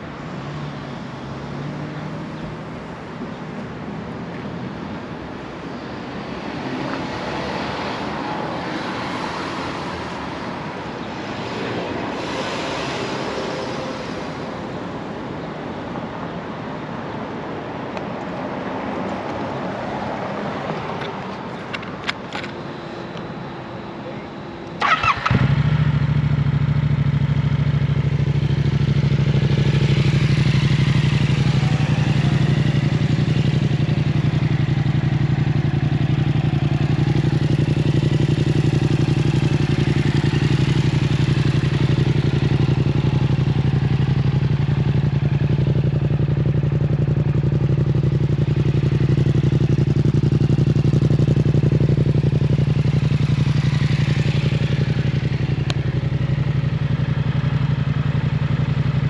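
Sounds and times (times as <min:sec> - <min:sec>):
motorcycle engine idling: 0:24.7 - 0:59.0.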